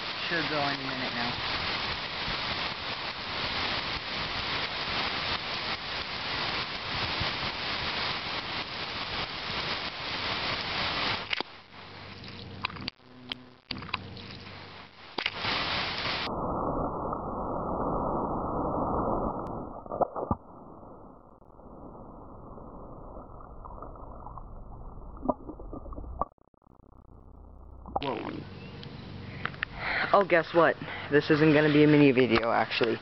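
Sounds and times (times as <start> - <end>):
sprinkler hissing: 0.0 - 16.3, 28.0 - 33.0.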